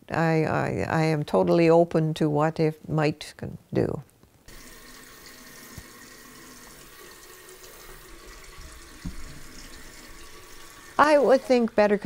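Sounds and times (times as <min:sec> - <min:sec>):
tap water running into sink: 0:04.5 - 0:12.0.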